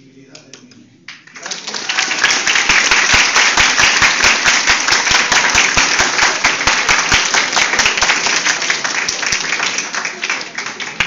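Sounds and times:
audience applauding: 0:01.1 - 0:11.0.

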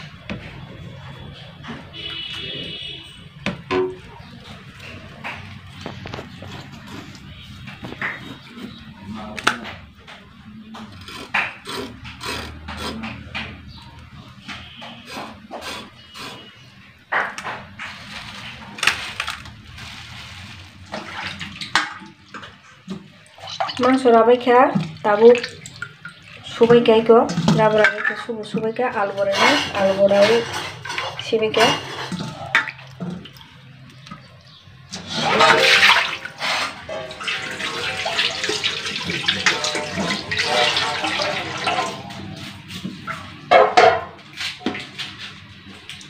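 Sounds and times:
water splashing in a steel bowl: 0:17.9 - 0:43.4.

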